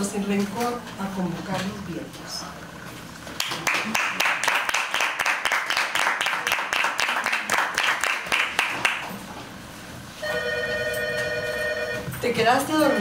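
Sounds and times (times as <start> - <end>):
small group applauding: 3.3 - 9.3
phone ringing: 10.2 - 13.0.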